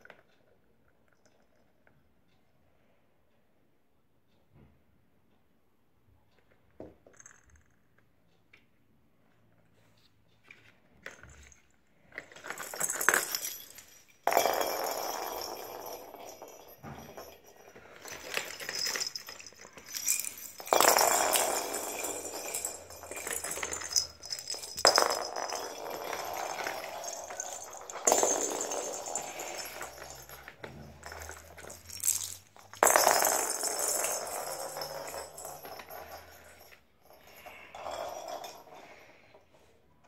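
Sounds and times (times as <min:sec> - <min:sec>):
plastic balls rolling on wooden floor: 0:10.6 - 0:39.5.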